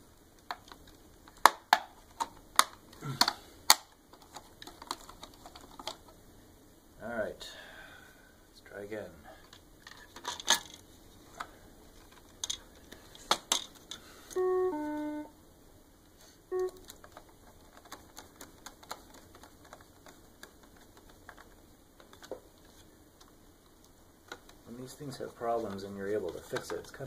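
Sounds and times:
short beep: 14.4 - 15.3, 16.5 - 16.8
two-note falling electronic beep: 14.4 - 15.3, 16.5 - 16.8
hard plastic clicks and snaps: 16.6 - 22.4.

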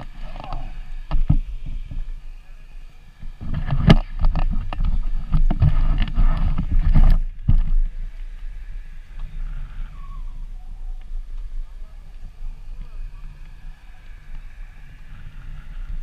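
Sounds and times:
low wind rumble: 0.0 - 16.0
camera handling rubbing and knocking: 3.4 - 7.7.

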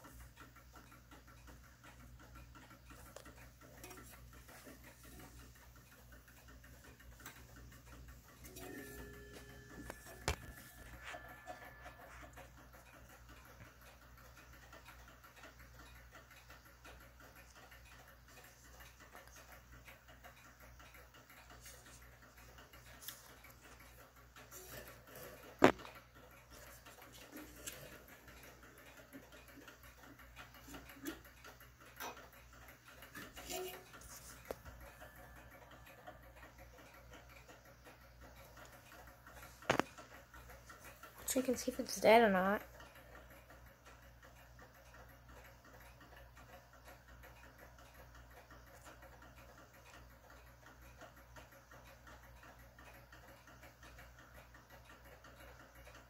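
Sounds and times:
clock movement clicks and knocks: 0.0 - 56.0.

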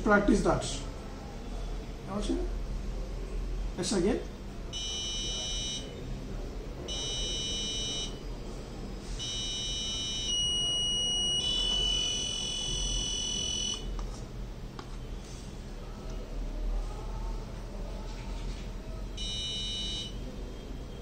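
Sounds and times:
high-pitched buzzer beeping: 4.8 - 6.0, 6.9 - 8.2, 9.2 - 13.9, 19.2 - 20.2.

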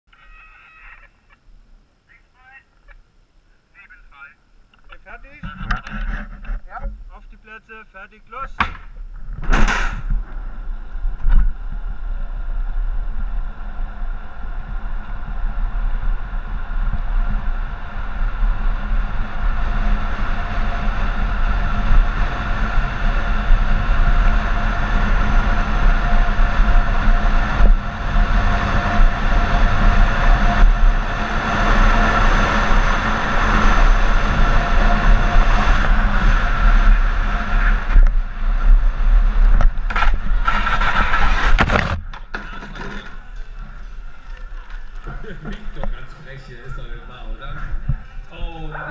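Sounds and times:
toy car wheels rolling on asphalt: 10.1 - 47.0.

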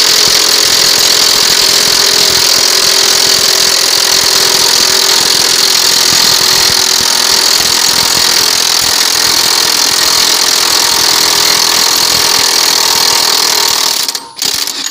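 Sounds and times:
impact wrench hammering: 0.0 - 14.9
high-pitched ring: 14.0 - 14.9.

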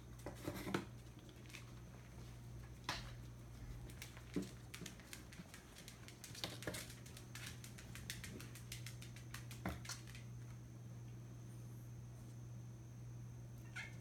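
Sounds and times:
kitten claws skittering on floor: 3.1 - 10.4.

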